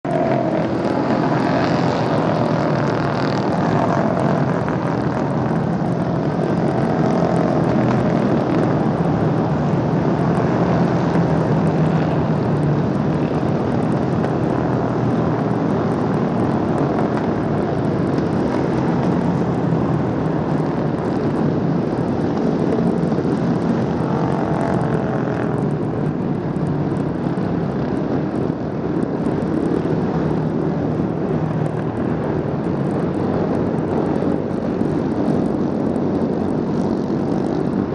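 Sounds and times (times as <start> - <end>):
racing motorcycles droning: 0.0 - 37.9
motorcycle passing by: 0.1 - 5.7, 24.0 - 25.6.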